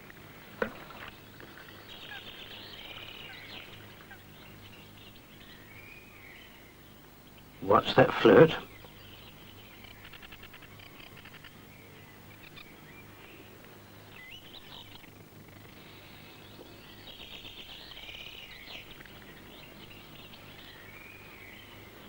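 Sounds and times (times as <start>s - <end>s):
birds chirping and twittering: 0.0s - 22.0s
faint low hum: 0.0s - 22.0s.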